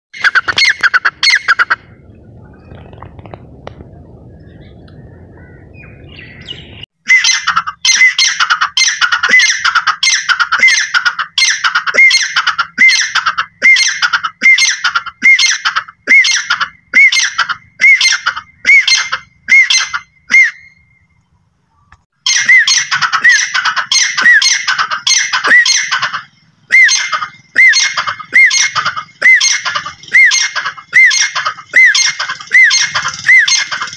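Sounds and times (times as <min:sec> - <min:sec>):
low rumble: 0:01.8 - 0:06.8
bird shrill calls: 0:04.3 - 0:33.9.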